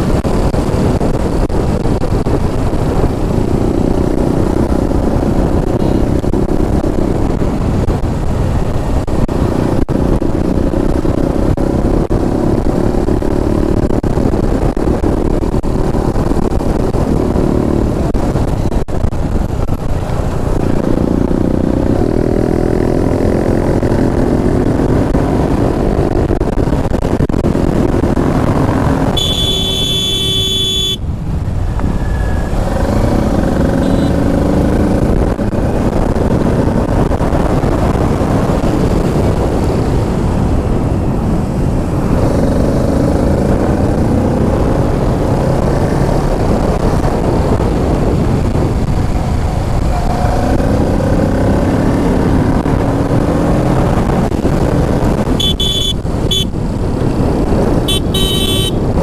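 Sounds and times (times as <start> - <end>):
motorcycle engine running: 0.0 - 59.0
horn sounding: 29.1 - 31.0, 33.8 - 34.2, 55.4 - 56.5, 57.9 - 58.8
wind rushing: 31.0 - 59.0.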